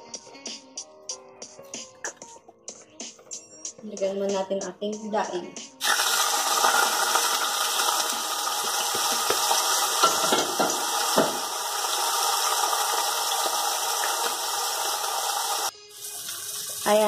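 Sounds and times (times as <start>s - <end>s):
oil pops and crackles: 5.8s - 11.5s
fish sizzling in hot oil: 5.8s - 17.0s.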